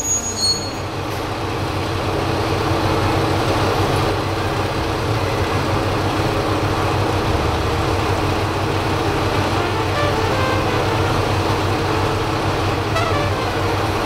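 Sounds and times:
train wheel squeal: 0:00.0 - 0:01.2
diesel railcar engines idling: 0:00.0 - 0:14.0.

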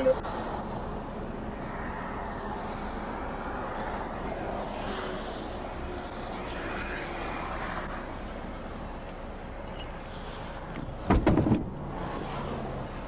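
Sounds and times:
loud knocks: 0:11.1 - 0:11.7.

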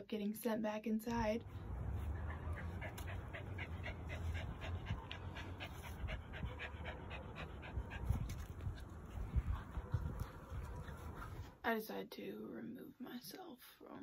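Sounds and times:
low steady rumble: 0:01.4 - 0:11.6
dog panting rapidly: 0:01.6 - 0:11.6.

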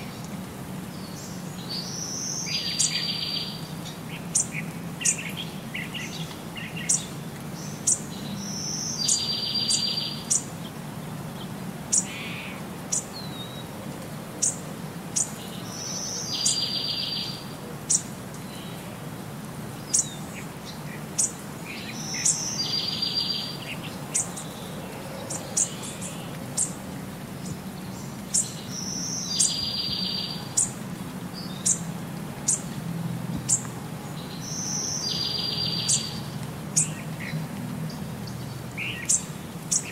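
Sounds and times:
bird chirping: 0:01.0 - 0:10.5, 0:15.2 - 0:18.8, 0:19.8 - 0:26.8, 0:27.4 - 0:31.9, 0:33.4 - 0:39.9.

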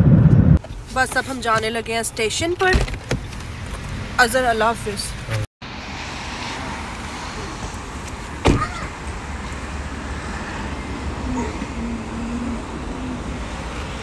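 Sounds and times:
car engine rumbling: 0:00.0 - 0:14.0
street traffic: 0:00.0 - 0:14.0
car door shutting: 0:08.0 - 0:08.8.

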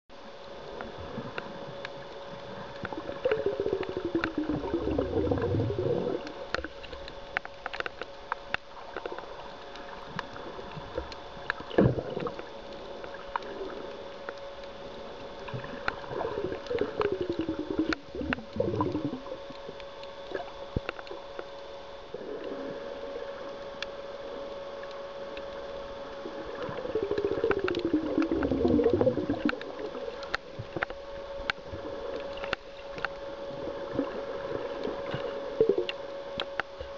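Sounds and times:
steady underwater hum: 0:00.1 - 0:36.9
crackling clicks: 0:00.2 - 0:36.9.

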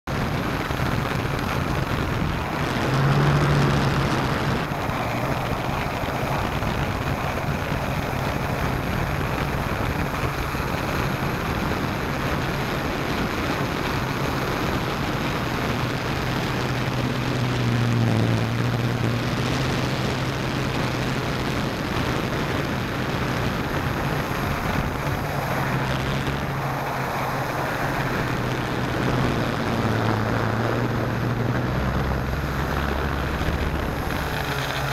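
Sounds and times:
rush of air noise: 0:00.1 - 0:34.9
drone motors whirring: 0:31.7 - 0:34.9.

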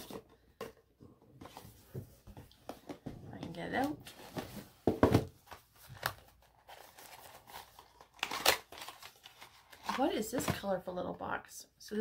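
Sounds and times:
cardboard box knocks and rustles: 0:04.5 - 0:05.4.

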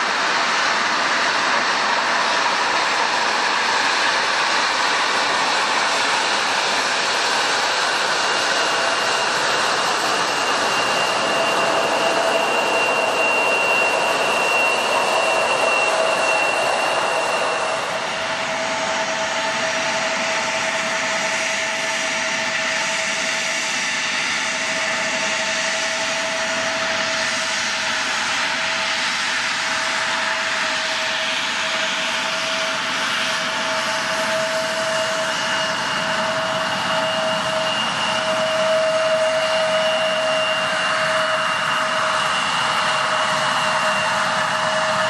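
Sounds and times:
jet engines whining: 0:00.0 - 0:45.0.

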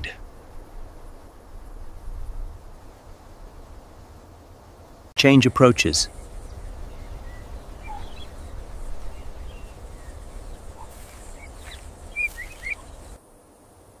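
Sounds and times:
steady low rumble: 0:06.1 - 0:13.2
short bird chirps: 0:09.2 - 0:13.1.

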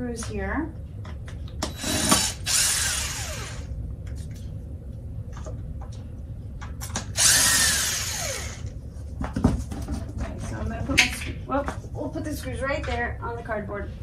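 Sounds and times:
cordless drill whining: 0:01.7 - 0:03.7, 0:07.2 - 0:08.7.

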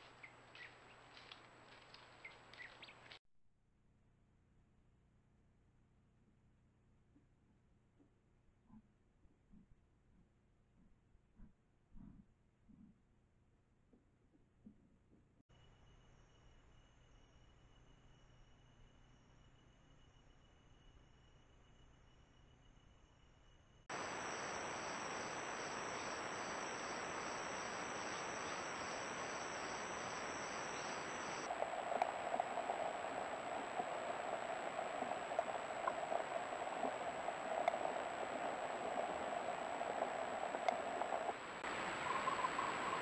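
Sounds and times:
cricket-like trill: 0:15.5 - 0:43.0
faint high whine: 0:15.5 - 0:43.0
rough insect drone: 0:23.9 - 0:43.0
steady hiss: 0:23.9 - 0:43.0.

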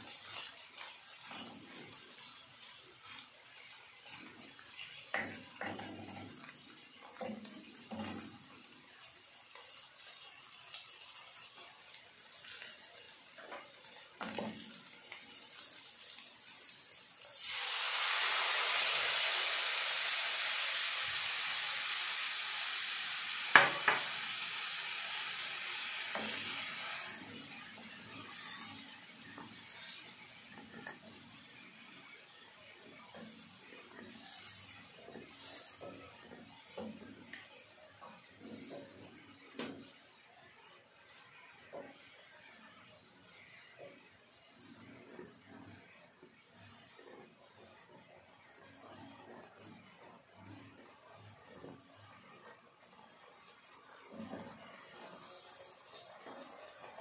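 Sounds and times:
loud sizzle in hot oil: 0:00.0 - 0:57.0.

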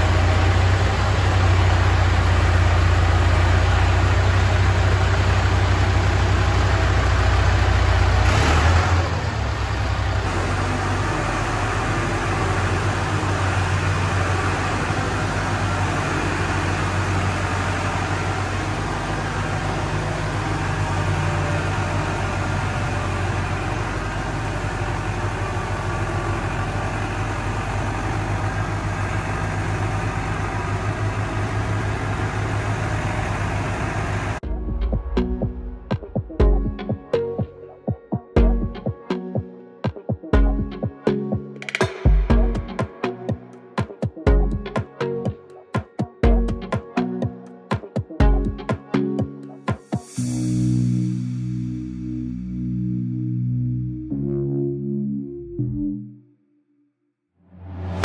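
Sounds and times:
tractor diesel engine running: 0:00.0 - 0:37.1.

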